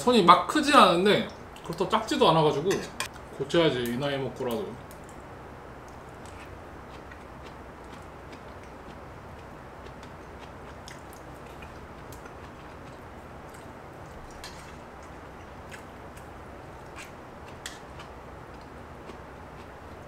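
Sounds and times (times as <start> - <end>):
steady low hum: 0.0 - 20.0
person chewing: 5.9 - 20.0.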